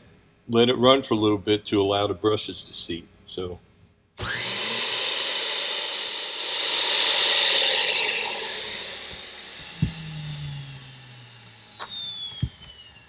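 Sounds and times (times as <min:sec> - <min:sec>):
electric motor whining: 0:04.2 - 0:13.0
low knock: 0:09.7 - 0:10.3
sharp clicks: 0:11.7 - 0:13.0.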